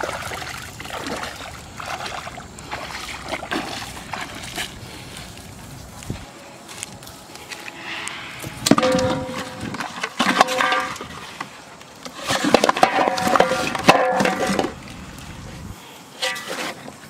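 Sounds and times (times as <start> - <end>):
metal basin ringing: 7.7 - 11.0
objects clattering into metal basin: 8.8 - 11.3, 12.1 - 14.8.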